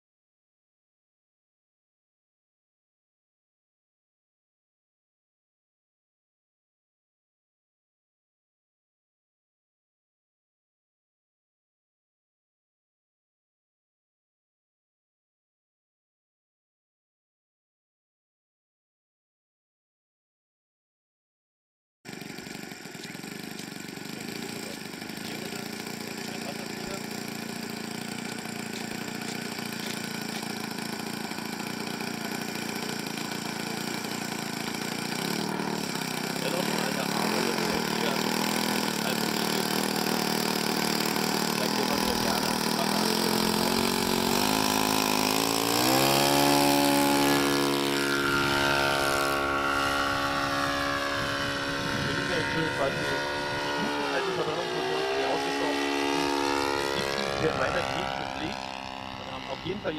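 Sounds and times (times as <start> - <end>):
model aircraft engine running: 22.1 - 59.9.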